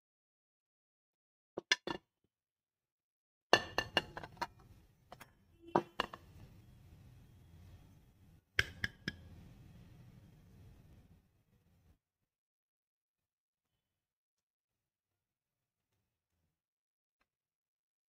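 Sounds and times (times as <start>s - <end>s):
metal pot clinking on ceramic plate: 3.6s - 4.5s.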